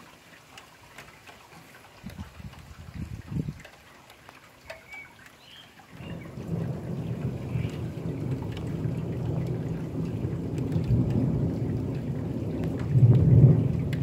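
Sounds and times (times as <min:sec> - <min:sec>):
steady rain: 0:00.0 - 0:14.0
thunder rumbling: 0:05.9 - 0:14.0.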